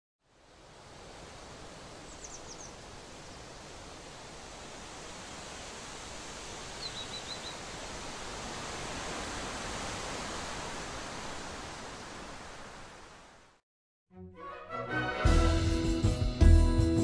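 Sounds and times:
outdoor background hiss: 0.2s - 13.6s.

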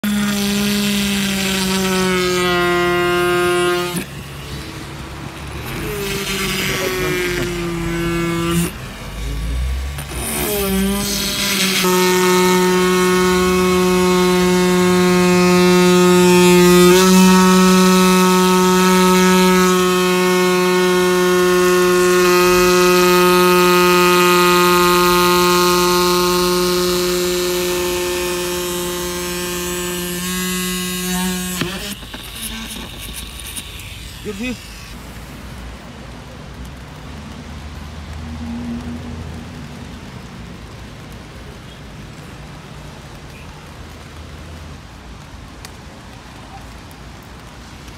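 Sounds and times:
rotary tool whining: 0.0s - 35.4s.

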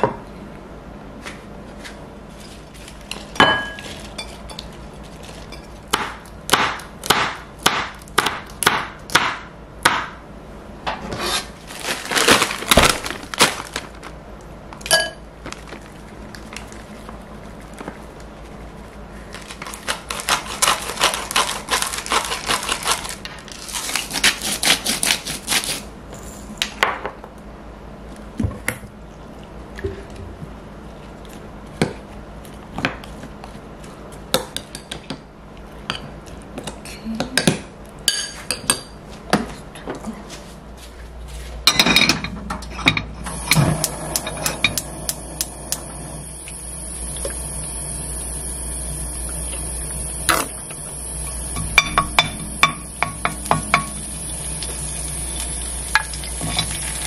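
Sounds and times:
utensil clinking in glass bowl: 14.9s - 15.2s.

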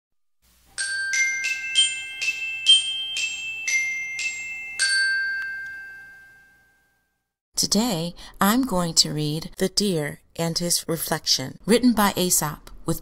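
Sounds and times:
mallet percussion jingle: 0.8s - 6.7s.

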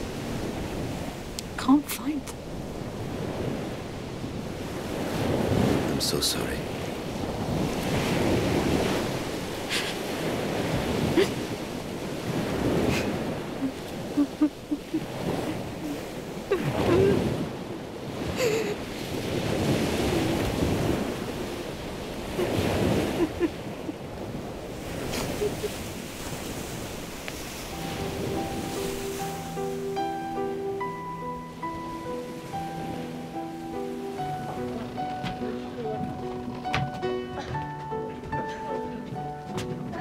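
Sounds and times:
sea surf breaking: 0.0s - 40.0s
wind: 0.0s - 40.0s
woman crying: 11.1s - 11.5s, 12.9s - 17.4s, 18.3s - 18.9s, 22.4s - 24.0s, 25.2s - 25.8s.

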